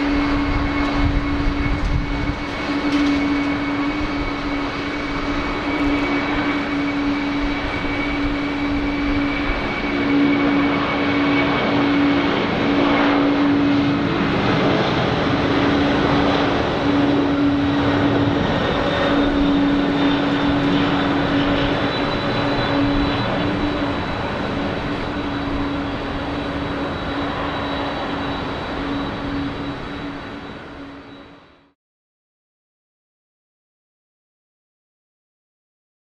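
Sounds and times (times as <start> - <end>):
jet engines at take-off thrust: 0.0 - 31.8.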